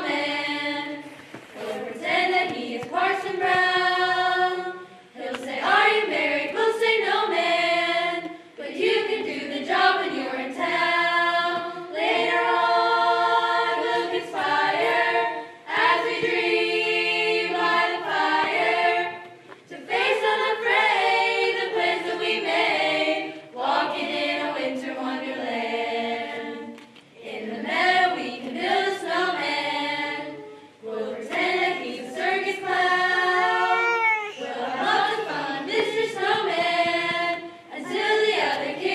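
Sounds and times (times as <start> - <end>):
choir singing: 0.0 - 38.9.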